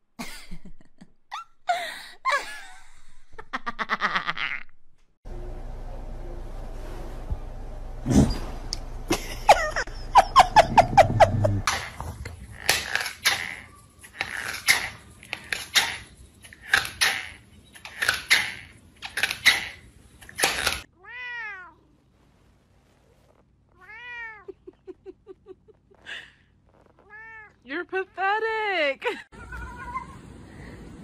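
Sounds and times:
cats meowing: 20.9 - 21.9, 23.8 - 24.5, 27.0 - 27.6, 29.3 - 30.3.

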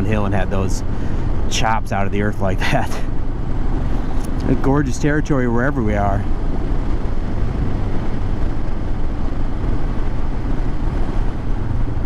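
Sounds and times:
rush of wind noise: 0.0 - 12.0.

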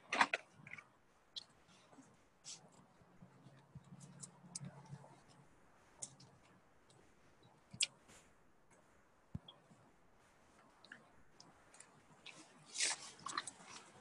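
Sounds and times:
faint low hum: 0.0 - 14.0
faint clicks and ticks: 0.1 - 9.9.

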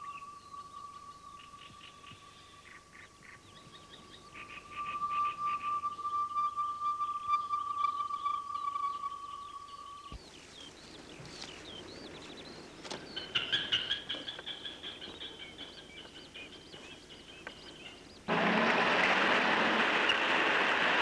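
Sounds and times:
small birds chirping: 0.0 - 18.3
steady single tone: 4.2 - 10.2
bus engine noise: 18.3 - 21.0.

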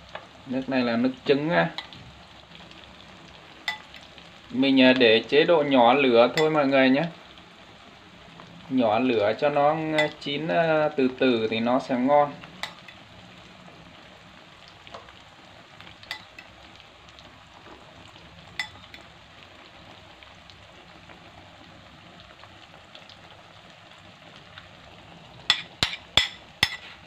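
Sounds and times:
fish frying in oil: 0.0 - 27.0
spoon clinking against bowl: 3.7 - 3.9, 10.0 - 10.2, 12.6 - 13.0, 16.1 - 16.5, 18.6 - 18.8.

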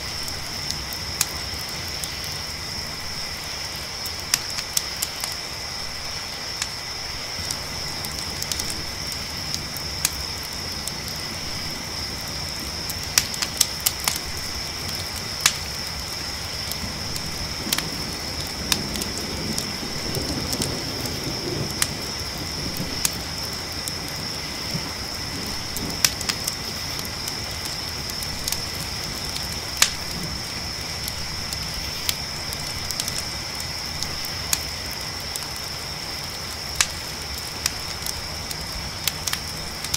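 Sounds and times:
campfire crackling and popping: 0.0 - 39.9
crickets chirping: 0.0 - 39.9.

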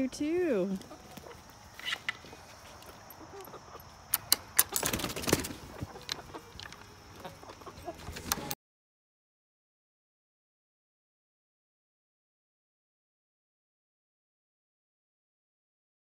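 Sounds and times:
chickens clucking: 0.1 - 8.6.

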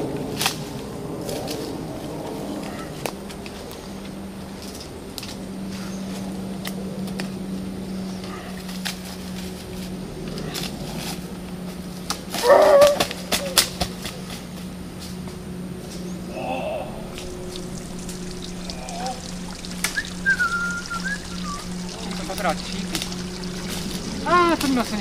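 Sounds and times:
dry leaves crunching underfoot: 8.1 - 16.3
twigs snapping: 8.2 - 16.1, 17.0 - 25.0.

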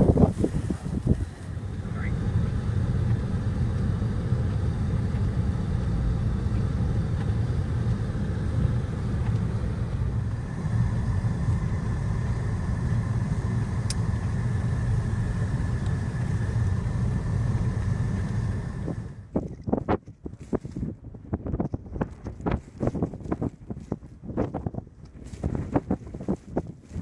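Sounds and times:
faint whine: 0.0 - 19.9
car engine and tyres rumbling: 0.0 - 27.0.

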